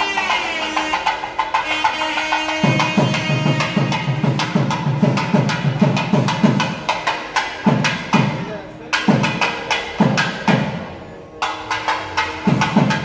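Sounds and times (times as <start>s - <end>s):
reed instrument melody: 0.0s - 6.0s.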